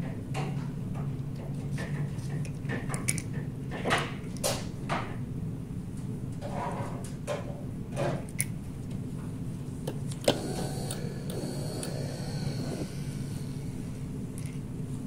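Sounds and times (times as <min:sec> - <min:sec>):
centrifuge motor whirring: 0:10.1 - 0:15.0.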